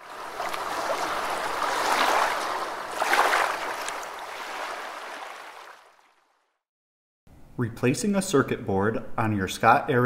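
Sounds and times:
rushing splashing water: 0.0s - 6.4s.

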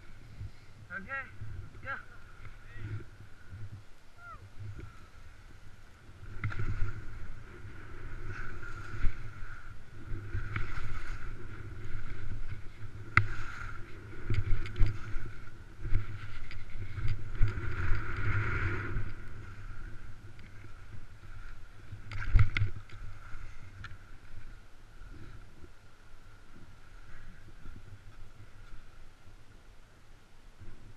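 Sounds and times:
wind rumbling on microphone: 0.0s - 30.9s
skis scraping on snow: 4.6s - 29.0s.

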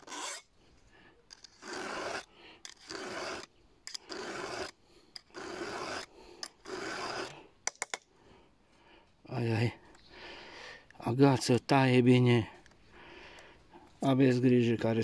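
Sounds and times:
file rasping on chain: 0.0s - 0.5s, 1.3s - 7.4s
file clicking against chain: 1.3s - 7.9s.

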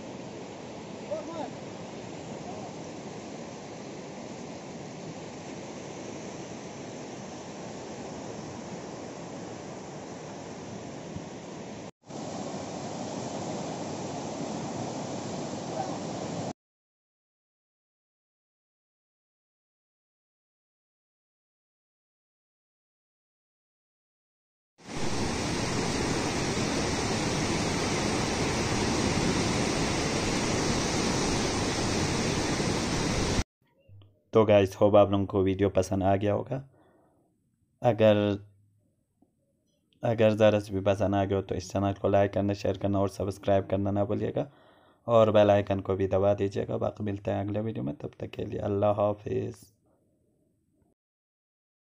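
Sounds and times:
river water rushing: 0.0s - 16.5s, 24.9s - 33.4s.

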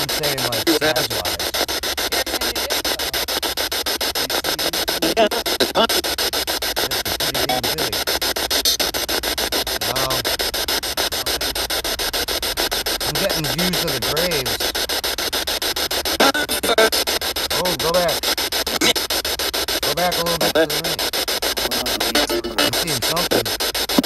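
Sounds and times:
whisper: 0.0s - 3.2s, 4.2s - 5.9s, 6.8s - 8.0s, 9.8s - 10.2s, 13.0s - 14.6s, 16.2s - 18.2s, 19.8s - 21.0s, 21.6s - 23.5s
static hiss with flutter: 0.0s - 24.0s
faint voice-like fragments: 9.8s - 10.2s, 21.6s - 23.5s.

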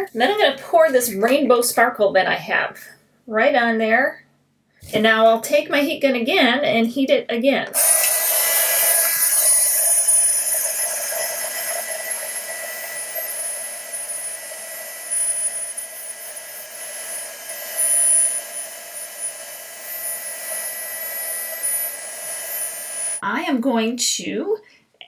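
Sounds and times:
heat gun whining: 7.7s - 23.2s.

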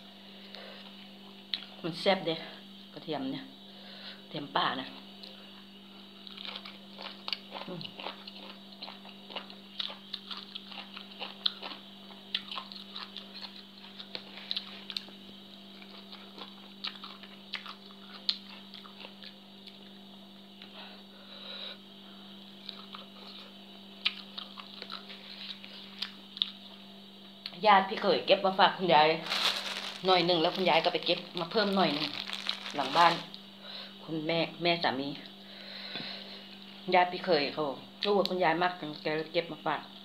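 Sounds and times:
steady low hum: 0.0s - 40.0s
person chewing with wet crunches: 6.1s - 20.0s, 22.6s - 26.8s, 29.3s - 33.4s.

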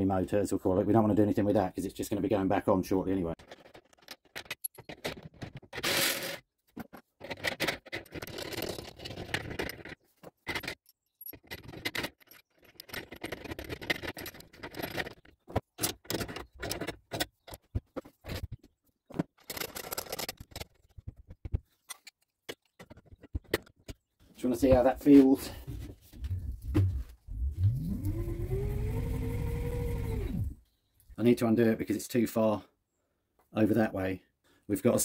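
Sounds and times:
metal parts clinking and scraping: 3.4s - 21.1s, 21.7s - 24.0s.

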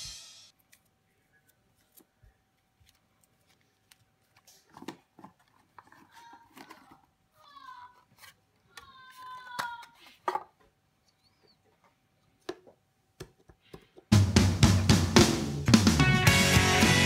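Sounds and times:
paper and packaging rustling: 0.6s - 10.4s.

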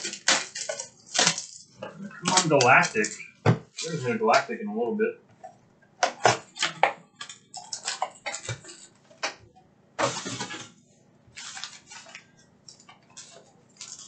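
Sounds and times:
plastic wrappers crinkling: 0.0s - 4.0s, 6.1s - 9.0s, 11.3s - 14.0s.

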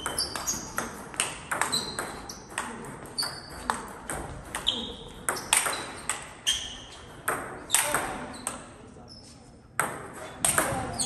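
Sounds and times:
ball pinging on table: 0.0s - 6.3s, 7.0s - 8.6s
table tennis ball clicking: 5.3s - 6.3s.

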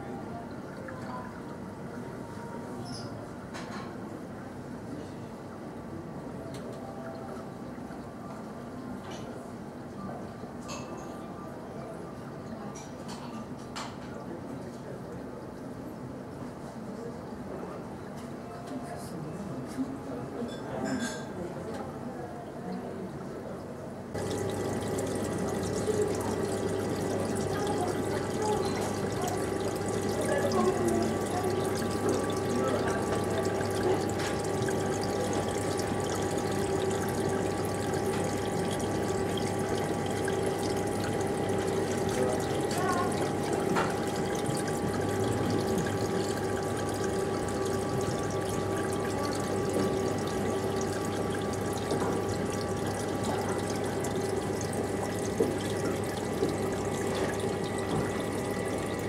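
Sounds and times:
pumps humming: 0.0s - 3.5s, 24.0s - 59.0s
moving water: 0.0s - 59.0s.

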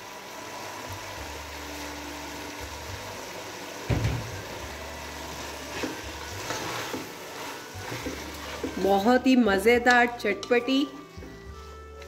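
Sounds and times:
food sizzling in a pot: 0.0s - 12.0s
loud clunk: 3.9s - 4.4s
wooden spatula tossing noodles: 5.4s - 9.3s, 10.9s - 12.0s.

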